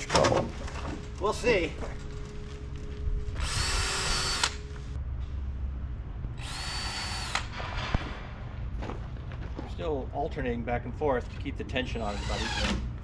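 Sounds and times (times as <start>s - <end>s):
power drill motor whine: 3.4s - 4.6s, 6.4s - 7.5s.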